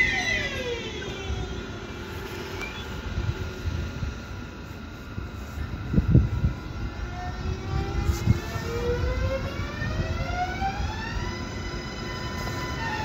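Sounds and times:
electric train whine: 0.0 - 13.0
wheels rumbling on rails: 0.0 - 13.0.

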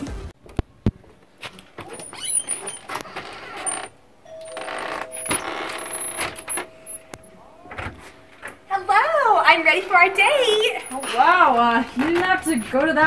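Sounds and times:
steady two-note hum: 4.2 - 10.9.

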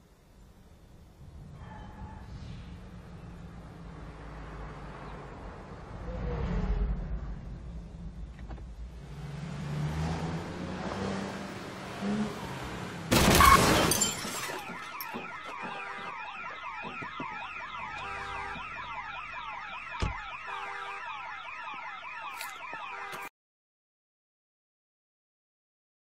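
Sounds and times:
car alarm rising and falling: 12.0 - 23.3
glass breaking: 13.1 - 15.3
car crash: 13.1 - 16.0.

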